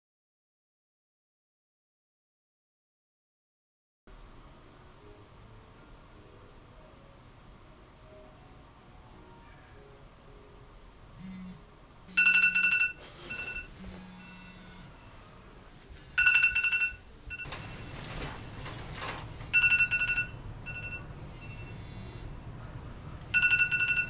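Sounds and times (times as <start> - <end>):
electronic two-tone phone ring: 12.1 - 14.5, 16.2 - 17.7, 19.5 - 21.7, 23.3 - 24.0
bedding rustling: 12.6 - 14.1, 17.4 - 20.2.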